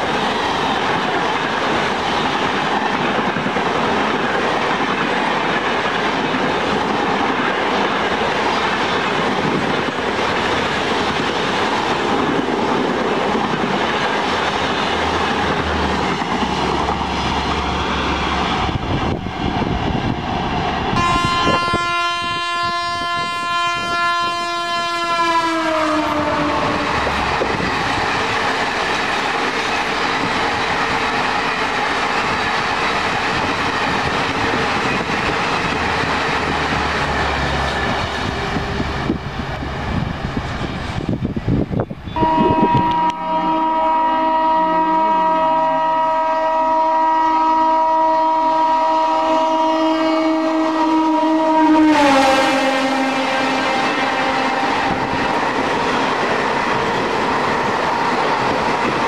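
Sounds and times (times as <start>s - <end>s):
train wheels rushing on rails: 0.0s - 59.0s
train horn blowing: 20.9s - 27.5s, 42.1s - 55.4s.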